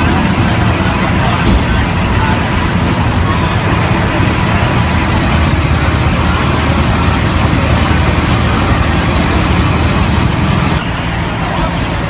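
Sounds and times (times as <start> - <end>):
heavy engine running: 0.0 - 12.0
street noise: 0.0 - 12.0.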